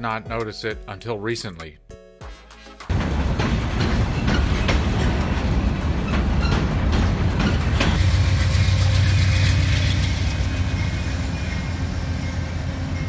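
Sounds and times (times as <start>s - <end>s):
train wheels clicking over rail joints: 2.9s - 12.2s
train rumbling on bridge: 2.9s - 13.0s.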